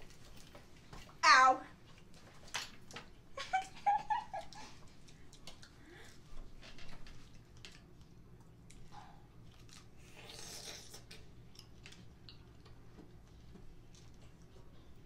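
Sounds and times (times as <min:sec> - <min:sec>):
quiet chewing: 0:04.3 - 0:15.0.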